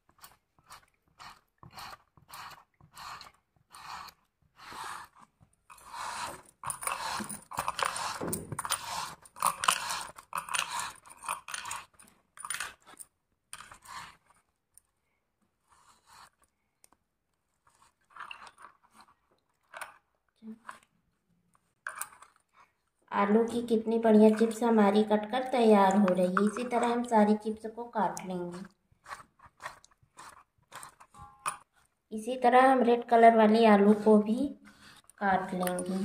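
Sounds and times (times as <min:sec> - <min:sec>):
potatoes scraping across slicer blade: 0:00.1 - 0:11.9, 0:13.6 - 0:14.3, 0:28.1 - 0:31.2.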